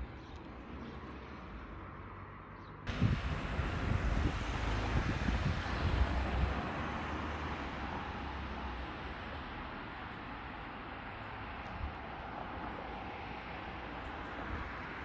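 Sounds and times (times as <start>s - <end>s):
passing car: 0.0s - 15.0s
wind buffeting microphone: 2.9s - 8.3s.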